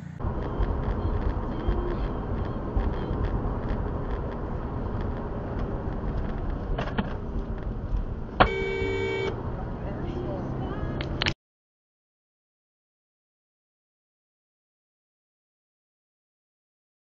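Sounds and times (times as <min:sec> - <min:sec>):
car engine and road rumble: 0:00.0 - 0:11.4
car horn: 0:08.4 - 0:09.4.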